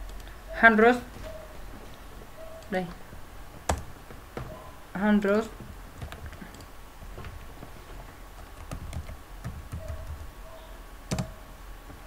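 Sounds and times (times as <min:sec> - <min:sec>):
keyboard keystrokes: 0:08.4 - 0:10.3, 0:11.1 - 0:11.4.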